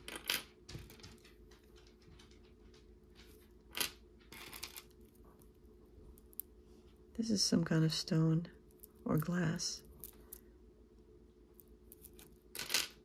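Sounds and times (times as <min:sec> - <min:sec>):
jewelry clicking and rustling: 0:00.0 - 0:06.6, 0:08.6 - 0:10.5, 0:11.5 - 0:13.0.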